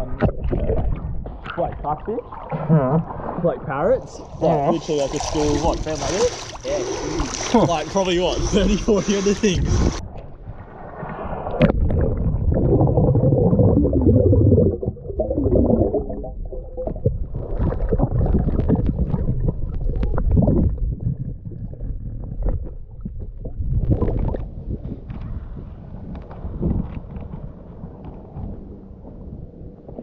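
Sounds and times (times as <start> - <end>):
gurgling bubbles: 0.0 - 25.4
underwater water rumble: 0.0 - 30.0
sharp splash: 4.8 - 8.1.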